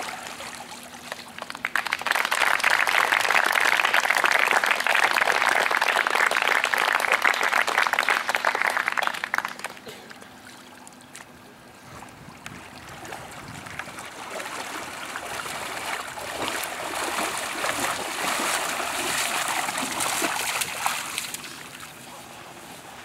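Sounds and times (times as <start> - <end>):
people wading through shallow water: 0.0 - 2.0, 9.2 - 23.0.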